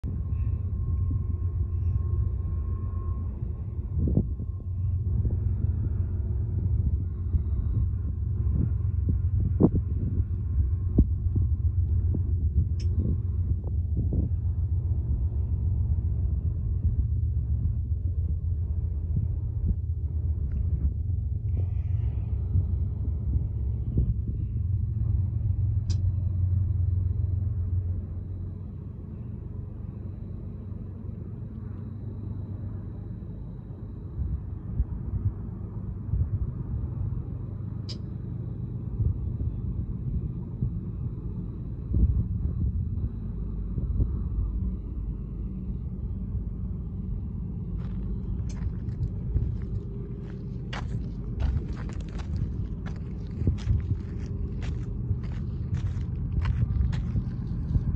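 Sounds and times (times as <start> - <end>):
diesel locomotive engine rumble: 0.0 - 57.9.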